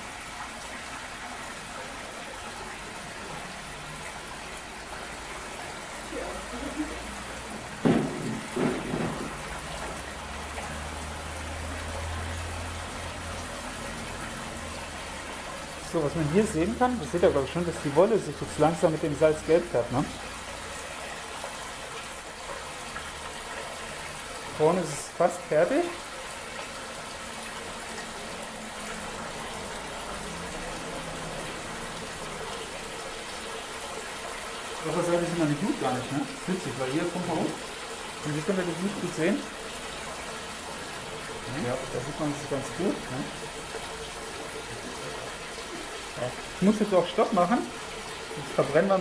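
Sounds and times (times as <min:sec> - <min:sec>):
water rushing through pump: 0:00.0 - 0:49.0.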